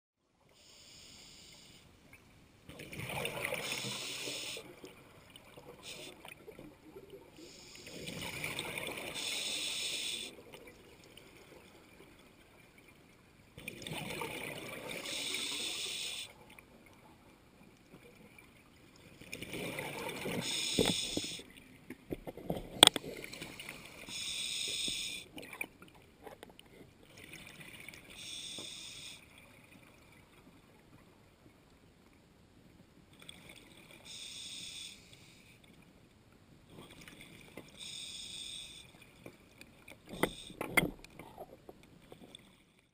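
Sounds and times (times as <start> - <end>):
exhaled bubbles underwater: 13.6 - 16.2.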